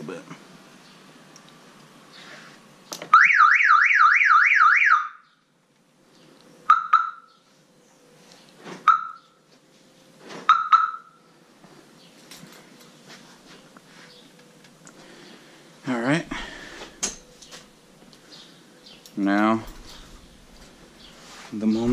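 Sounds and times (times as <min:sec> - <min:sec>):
car alarm siren warbling: 0:03.1 - 0:05.4, 0:06.6 - 0:07.4, 0:08.9 - 0:09.3, 0:10.5 - 0:11.2.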